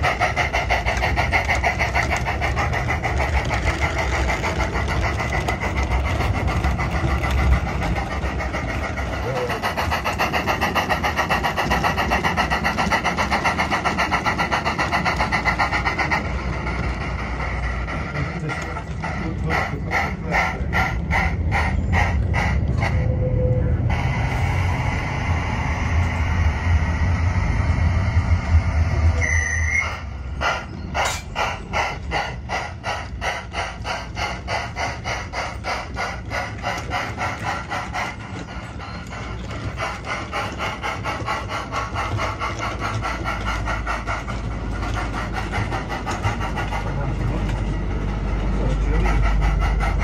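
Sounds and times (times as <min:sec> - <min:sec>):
low rumble of model train on track: 0:00.0 - 0:50.0
steam hiss: 0:00.0 - 0:50.0
steam locomotive chuffs: 0:00.0 - 0:50.0
short high whistle tone: 0:29.2 - 0:30.0.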